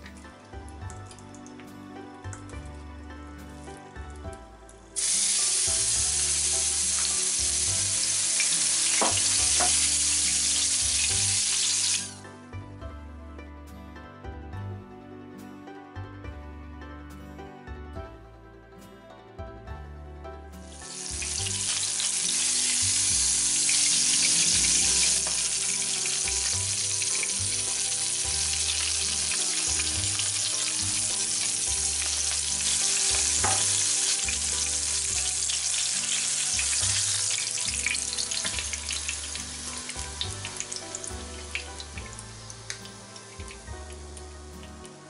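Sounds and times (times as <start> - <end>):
meat sizzling in oil: 5.0 - 12.2, 20.6 - 45.0.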